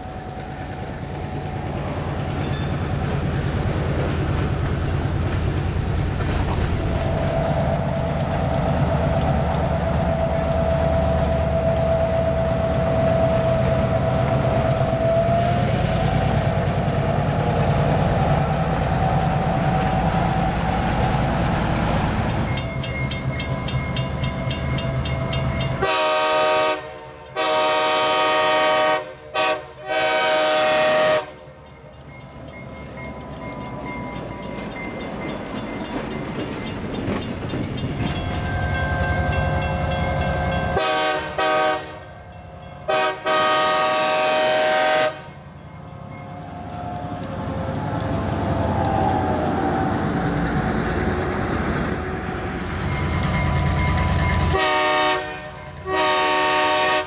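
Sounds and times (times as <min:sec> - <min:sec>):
diesel locomotive engine rumble: 0:00.0 - 0:57.0
crossing bell ringing: 0:22.2 - 0:26.1, 0:31.3 - 0:43.3, 0:44.7 - 0:50.2, 0:52.4 - 0:54.9
locomotive air horn blasts: 0:25.8 - 0:31.4, 0:40.7 - 0:42.1, 0:42.9 - 0:45.4, 0:54.5 - 0:57.0.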